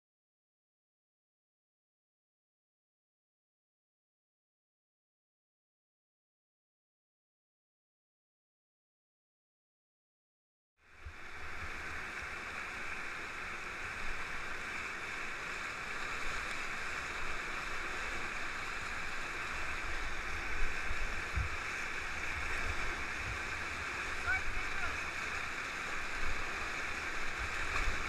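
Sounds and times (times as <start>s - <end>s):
whitewater rapids rushing: 11.0s - 28.0s
low thumps on microphone: 20.7s - 21.6s.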